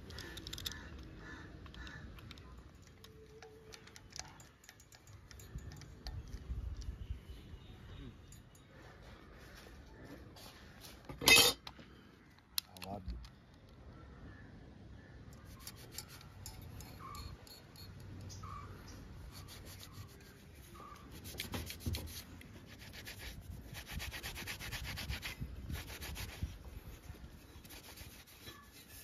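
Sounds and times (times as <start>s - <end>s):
cloth rag scrubbing metal: 19.3s - 29.0s.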